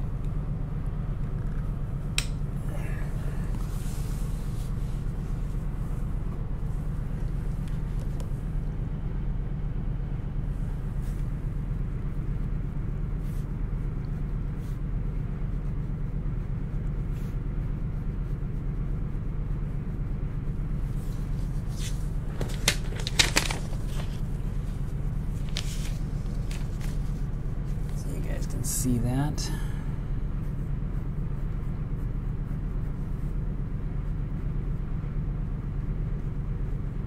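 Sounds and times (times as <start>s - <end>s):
steady low hum: 0.0s - 37.0s
paper sliding across cardboard: 21.0s - 27.2s.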